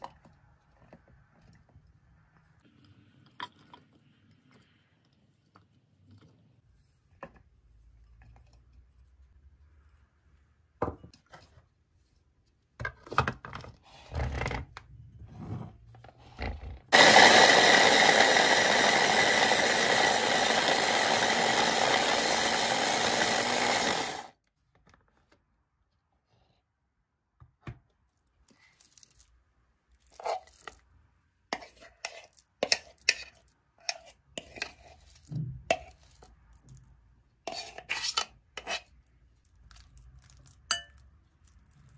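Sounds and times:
electric chopper grinding: 16.9 - 24.3.

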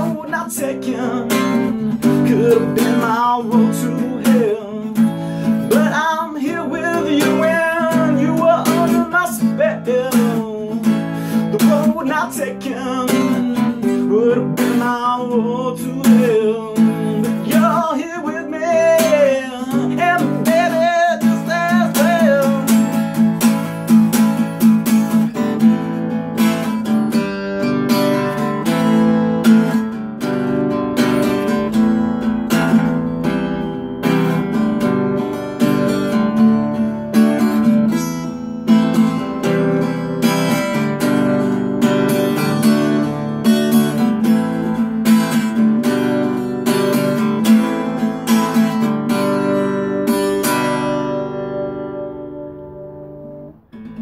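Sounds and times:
man singing: 0.0 - 23.7
acoustic guitar strumming: 0.0 - 54.0.

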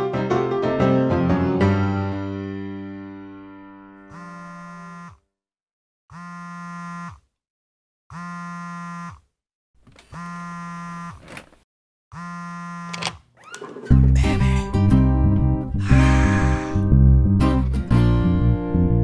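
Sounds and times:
mobile phone buzzing: 4.1 - 5.3, 6.1 - 7.4, 8.1 - 9.3, 10.0 - 11.3, 12.1 - 13.3.

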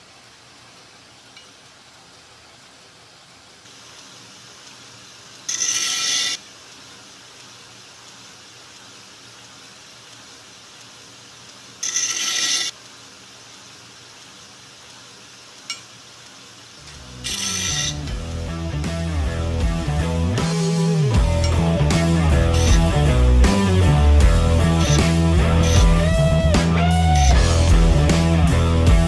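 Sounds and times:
belt grinder running: 5.5 - 6.4, 11.8 - 12.8, 16.8 - 20.5, 21.2 - 29.0.

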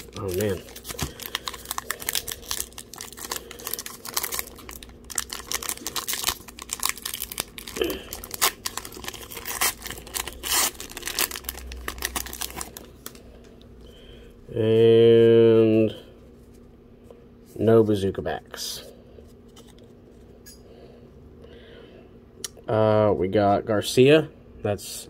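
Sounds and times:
card pack wrapper crinkling: 0.0 - 13.2.

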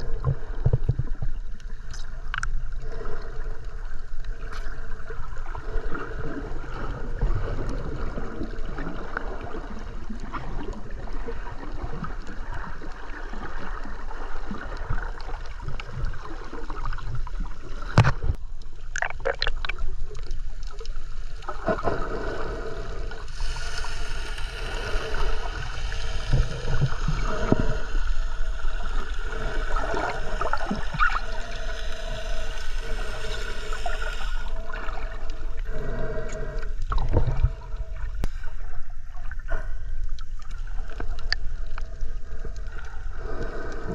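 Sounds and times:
hissy wash of water: 21.1 - 39.8
muffled underwater gurgling: 24.6 - 43.9.

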